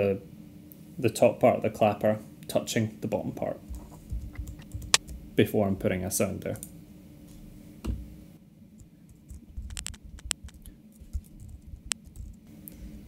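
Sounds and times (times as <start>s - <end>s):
computer keyboard keystrokes: 9.1s - 12.4s.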